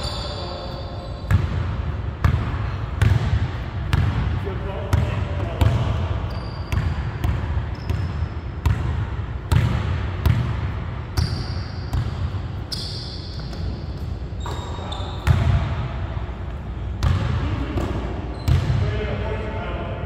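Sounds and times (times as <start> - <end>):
shoe squeaks: 0.0 - 1.4, 6.2 - 7.0, 7.7 - 8.4, 11.2 - 11.9, 12.6 - 15.3
basketball bouncing on hardwood floor: 6.7 - 10.6.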